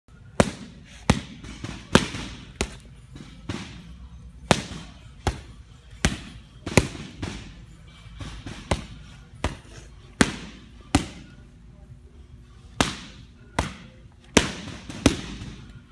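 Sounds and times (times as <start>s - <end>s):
boxing gloves punching focus mitt: 0.3s - 7.6s, 8.2s - 11.4s, 12.8s - 15.9s.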